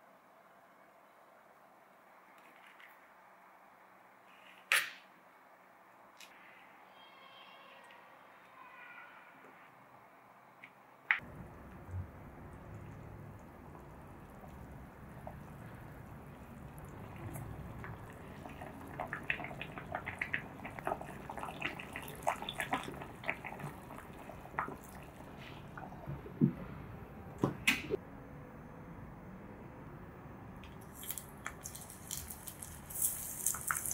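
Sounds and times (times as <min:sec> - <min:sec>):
soup bubbling in a saucepan: 0:11.2 - 0:26.4, 0:31.1 - 0:33.9.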